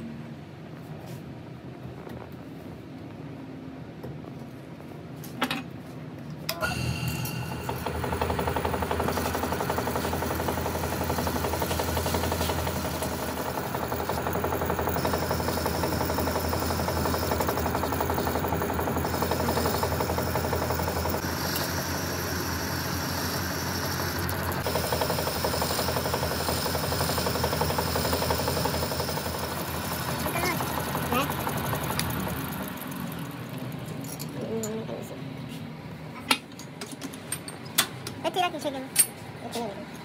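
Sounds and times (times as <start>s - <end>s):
workshop machine humming: 6.4s - 38.2s.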